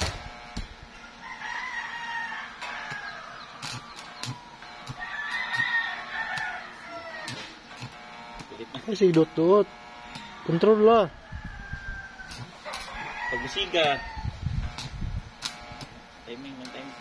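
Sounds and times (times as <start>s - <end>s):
welding arc crackles: 0.0s - 17.0s
rooster crowing: 0.9s - 7.6s, 10.1s - 14.4s.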